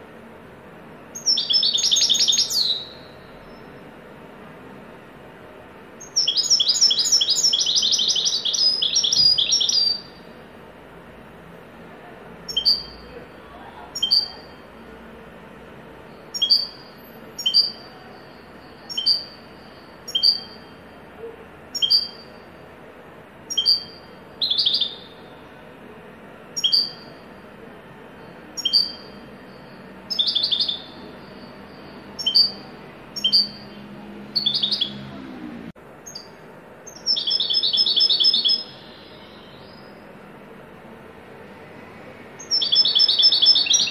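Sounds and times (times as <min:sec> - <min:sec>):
goldfinch singing: 0:01.2 - 0:03.2, 0:06.0 - 0:10.2, 0:12.5 - 0:13.0, 0:13.9 - 0:14.6, 0:16.3 - 0:18.0, 0:18.8 - 0:20.7, 0:21.7 - 0:22.3, 0:23.5 - 0:25.2, 0:26.6 - 0:27.2, 0:28.5 - 0:29.2, 0:30.1 - 0:33.8, 0:34.4 - 0:35.1, 0:36.9 - 0:40.0, 0:42.4 - 0:43.9.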